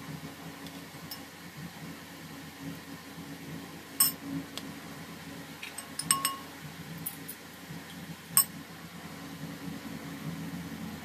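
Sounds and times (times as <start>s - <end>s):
steady low hum: 0.0s - 11.0s
glass cups clinking: 5.8s - 6.5s.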